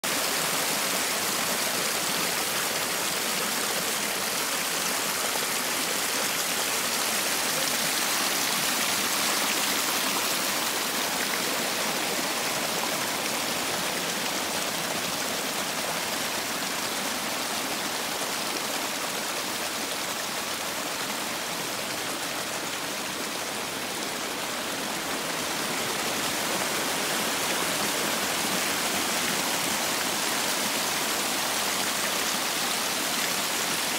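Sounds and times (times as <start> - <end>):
floodwater pouring down gully: 0.0 - 33.9.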